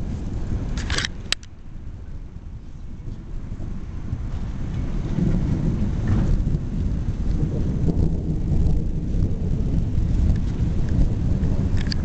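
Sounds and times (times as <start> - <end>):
thunder rumbling: 3.2 - 12.0.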